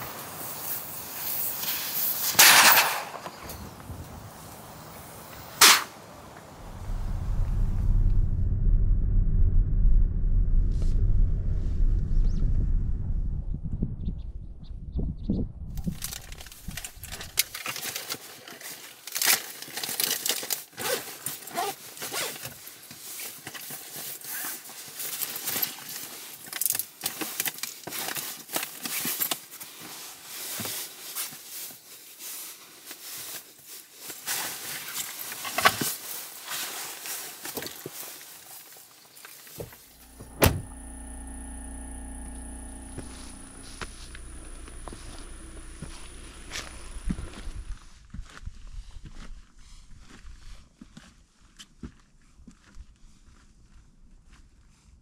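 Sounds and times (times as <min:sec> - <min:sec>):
steady low hum: 0:06.6 - 0:17.4, 0:39.8 - 0:48.0
plastic and fabric rustling: 0:15.8 - 0:40.3
thunks: 0:39.6 - 0:41.0.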